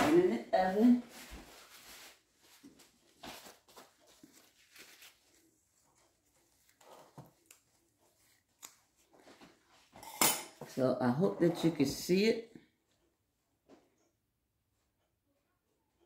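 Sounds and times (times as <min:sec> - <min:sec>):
gloved hands rustling and tapping: 0:02.6 - 0:09.9.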